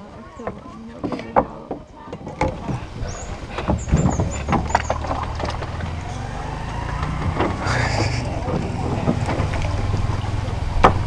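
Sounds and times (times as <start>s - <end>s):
boat engine running: 2.4s - 11.0s.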